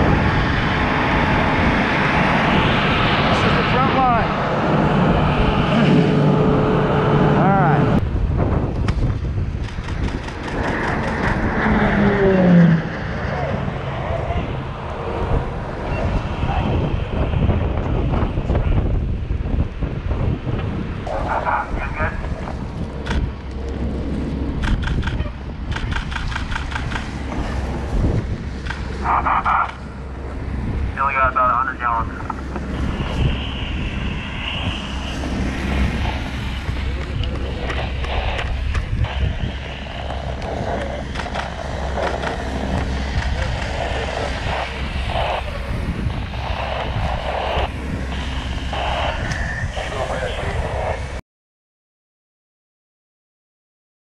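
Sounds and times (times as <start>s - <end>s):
wind buffeting microphone: 0.0s - 51.2s
diesel pump running: 26.2s - 50.4s.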